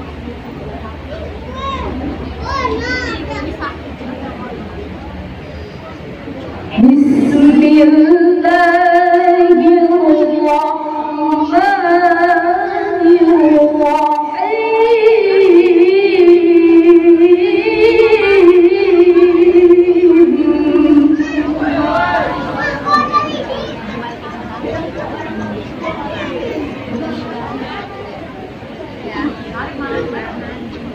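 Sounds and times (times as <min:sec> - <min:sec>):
woman reciting melodically: 0:06.7 - 0:22.6.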